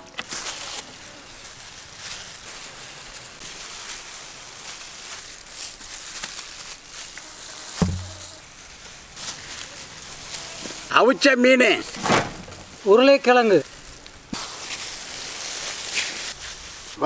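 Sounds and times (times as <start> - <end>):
plastic gloves rustling and crackling: 0.0 - 17.0
dull thump: 7.8 - 8.3.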